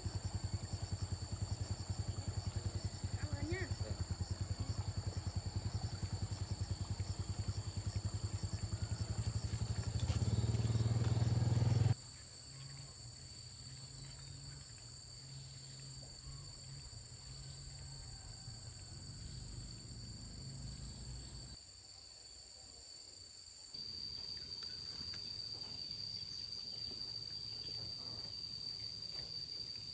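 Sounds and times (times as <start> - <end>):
small engine running: 0.0 - 12.0
insects droning: 0.0 - 29.9.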